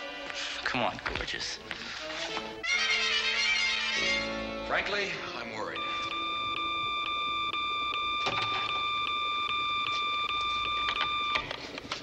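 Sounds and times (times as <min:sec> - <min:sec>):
pulsing electronic phone ring: 0:05.8 - 0:11.6.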